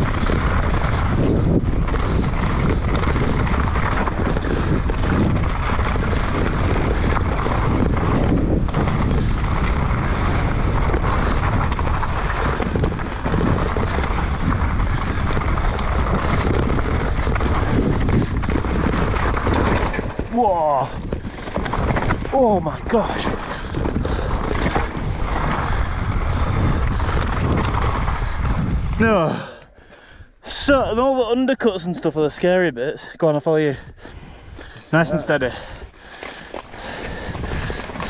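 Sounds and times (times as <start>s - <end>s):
bike knocks and rattles: 0.0s - 29.0s
bike tyres rumbling on rocks: 0.0s - 31.4s, 33.8s - 38.0s
wind buffeting microphone: 0.0s - 32.6s, 33.7s - 38.0s.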